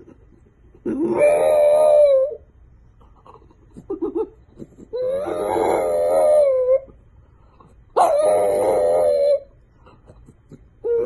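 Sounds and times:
dog howling: 0:00.9 - 0:02.5, 0:04.9 - 0:06.9, 0:08.0 - 0:09.5.

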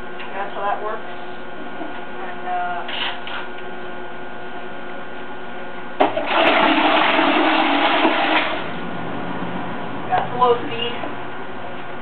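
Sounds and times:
propeller churning water: 0:06.0 - 0:11.6.

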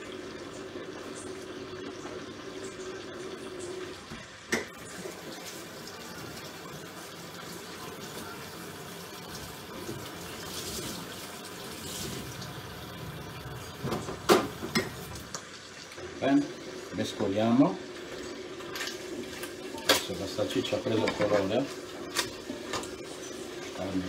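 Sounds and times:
tap running into a sink: 0:11.8 - 0:15.5.

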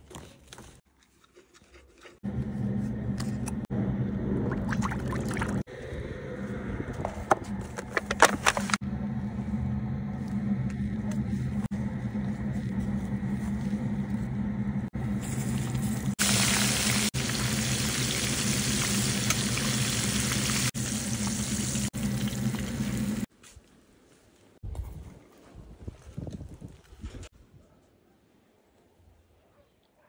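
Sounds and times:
steady low hum: 0:02.2 - 0:16.2
fish sizzling in hot oil: 0:15.3 - 0:23.3.

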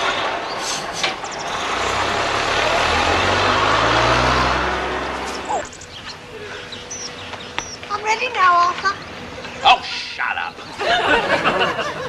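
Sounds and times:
vehicle engine running: 0:01.2 - 0:09.7.

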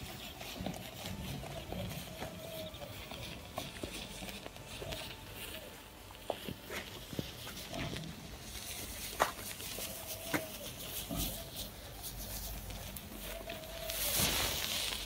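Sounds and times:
matches burning with crackle and pops: 0:12.9 - 0:15.0.

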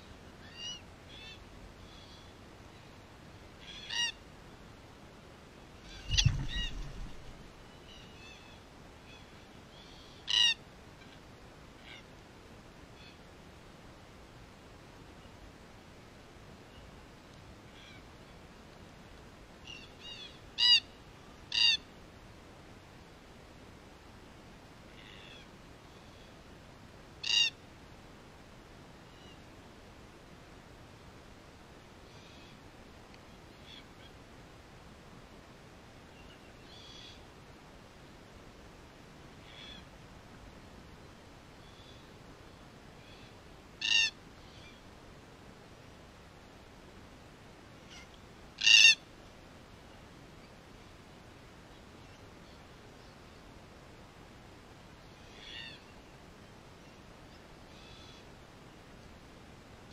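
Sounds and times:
cockatoo calls: 0:03.6 - 0:04.2, 0:05.8 - 0:11.2, 0:19.6 - 0:20.9, 0:21.5 - 0:21.8, 0:27.2 - 0:27.6, 0:39.4 - 0:39.9, 0:43.0 - 0:44.8, 0:47.8 - 0:49.0, 0:55.2 - 0:55.9
cockatoos harsh calls: 0:03.6 - 0:04.2, 0:05.8 - 0:07.3, 0:10.2 - 0:10.6, 0:27.2 - 0:27.5, 0:43.8 - 0:44.2, 0:47.9 - 0:49.0
wings flapping: 0:06.0 - 0:07.5.

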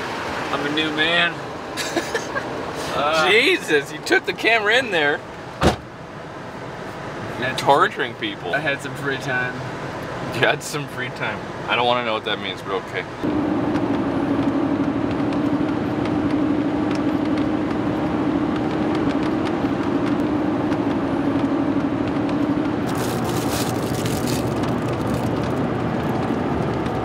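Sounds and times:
tyre and engine drone: 0:00.0 - 0:27.0
crackling: 0:22.8 - 0:27.0.

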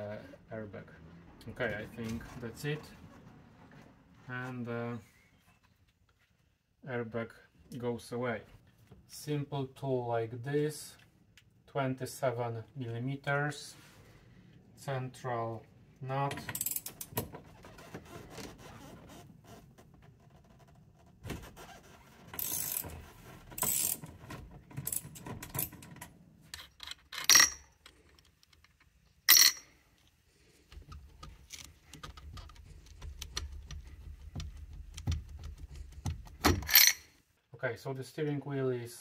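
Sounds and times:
ratchet wrench clicking: 0:22.4 - 0:22.9, 0:23.6 - 0:24.0
parts being handled clicking: 0:24.8 - 0:37.1.

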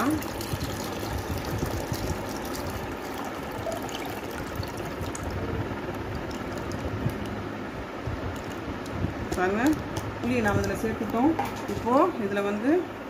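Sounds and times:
water pouring into a steel bowl: 0:00.0 - 0:06.9.

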